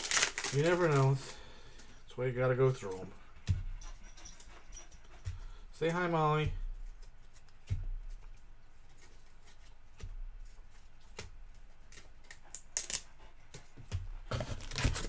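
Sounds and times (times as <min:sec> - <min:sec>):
cards clicking and rustling: 0:00.0 - 0:01.2.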